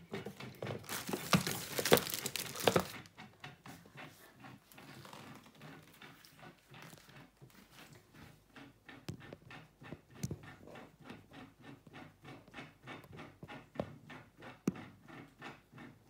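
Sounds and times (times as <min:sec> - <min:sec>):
plastic packaging crinkling: 0:00.8 - 0:03.0.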